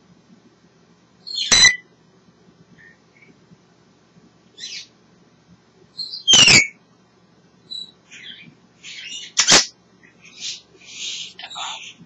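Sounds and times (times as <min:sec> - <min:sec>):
parrot calling: 0:01.3 - 0:01.8, 0:06.0 - 0:06.8, 0:07.7 - 0:12.0
parrot whistle-like call: 0:01.3 - 0:01.8, 0:06.0 - 0:06.8.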